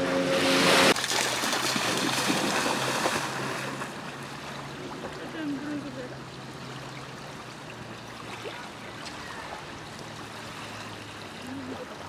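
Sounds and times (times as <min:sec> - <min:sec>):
river water lapping: 0:00.0 - 0:12.0.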